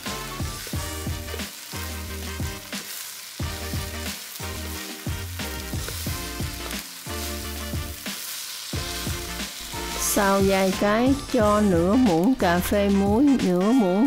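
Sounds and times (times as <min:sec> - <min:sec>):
rice sizzling in a frying pan: 0:00.0 - 0:11.8
background music with plucked notes: 0:00.0 - 0:14.0
wooden spatula stirring: 0:03.7 - 0:10.9.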